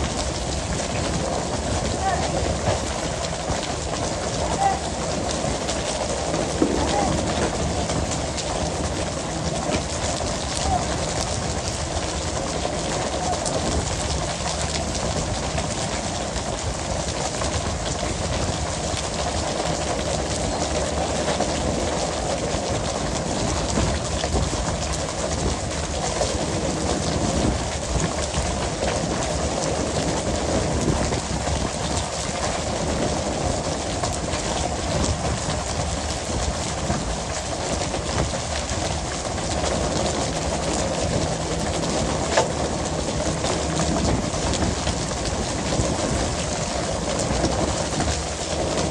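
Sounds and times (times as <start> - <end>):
water splashing along boat: 0.0 - 48.9.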